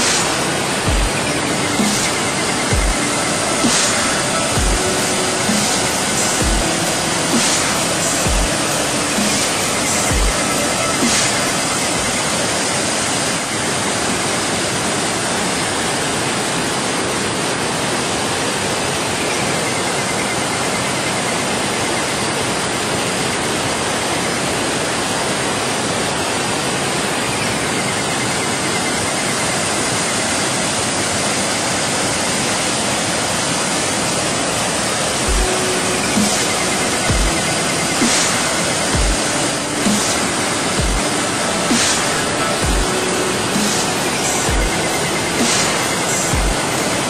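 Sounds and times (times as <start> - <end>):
water rushing over rocks: 0.0 - 47.0.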